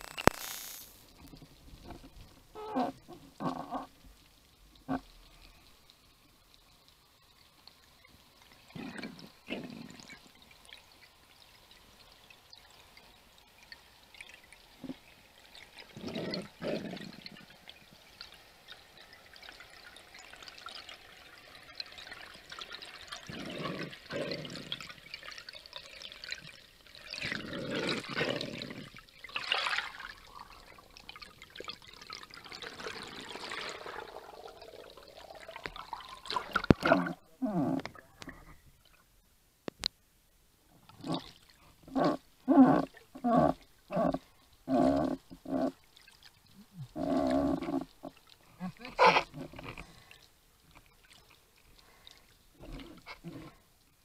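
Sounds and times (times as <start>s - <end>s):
faint underwater hiss: 0.0s - 31.1s, 32.3s - 54.0s
underwater rushing and bubbling: 21.3s - 38.6s.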